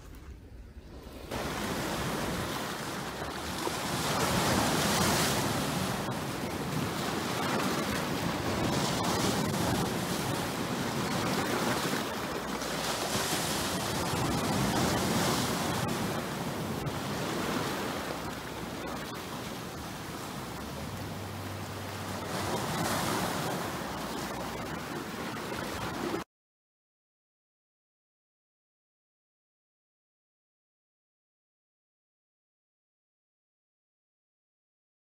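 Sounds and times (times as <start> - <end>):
waves breaking on shore: 0.0 - 26.2.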